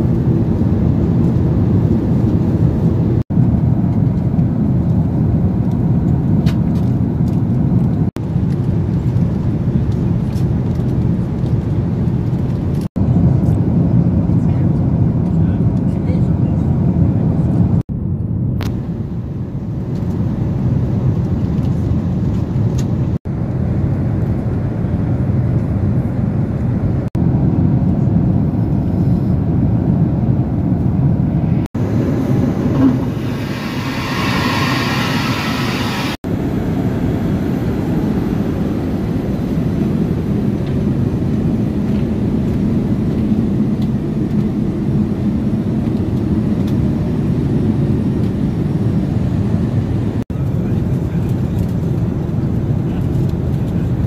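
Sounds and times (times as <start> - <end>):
airliner cabin rumble: 0.0 - 54.0
bright hiss: 33.0 - 36.2.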